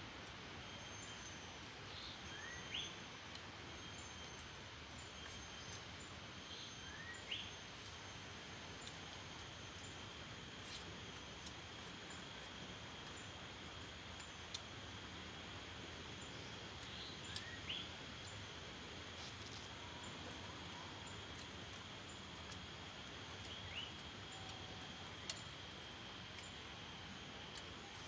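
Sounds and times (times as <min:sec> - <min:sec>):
high-pitched insect drone: 0:00.6 - 0:03.1
faint clicks: 0:16.8 - 0:17.6.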